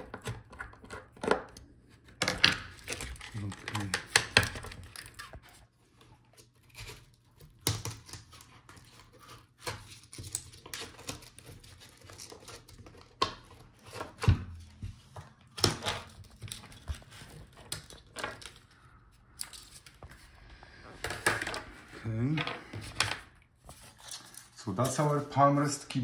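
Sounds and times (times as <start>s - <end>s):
laptop parts clicking and knocking: 0.0s - 5.4s, 6.7s - 8.5s.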